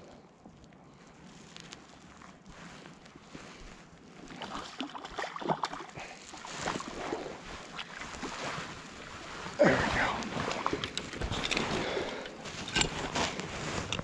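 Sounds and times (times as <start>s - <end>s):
fish splashing in water: 4.2s - 9.6s.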